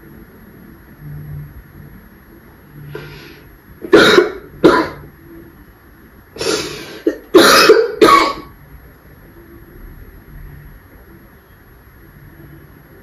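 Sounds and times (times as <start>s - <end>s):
woman coughing into cloth: 3.9s - 5.0s, 6.4s - 8.5s.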